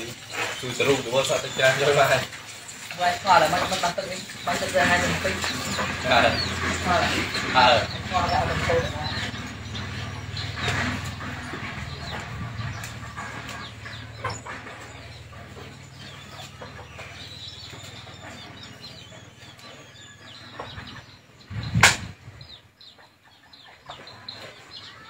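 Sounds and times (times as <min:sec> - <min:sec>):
loud sharp knock: 0:21.8 - 0:22.1.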